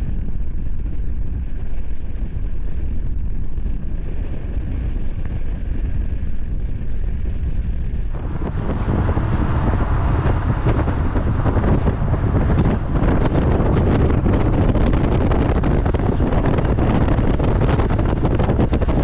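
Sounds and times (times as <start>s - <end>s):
vehicle low rumble: 8.0s - 19.0s
wind buffeting microphone: 8.0s - 19.0s.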